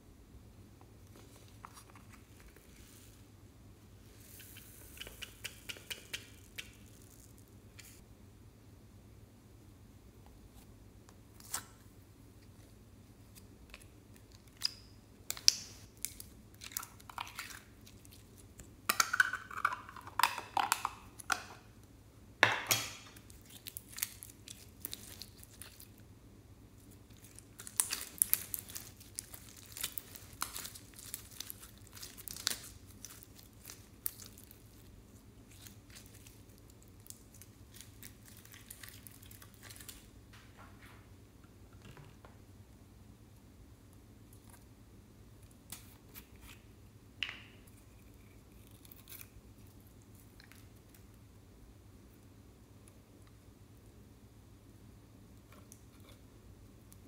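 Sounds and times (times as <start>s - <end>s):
slime crackling and popping: 22.8s - 26.0s, 27.1s - 34.9s, 35.5s - 40.1s.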